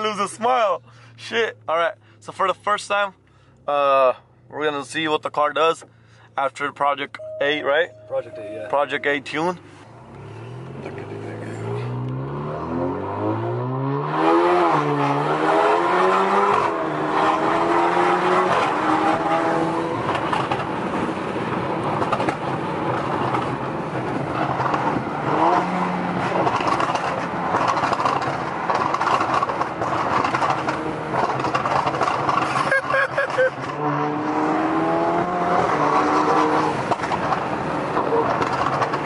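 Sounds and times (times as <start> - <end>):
car engine accelerating hard: 10.0 - 39.0
engine crackles: 20.0 - 33.9, 35.6 - 39.0.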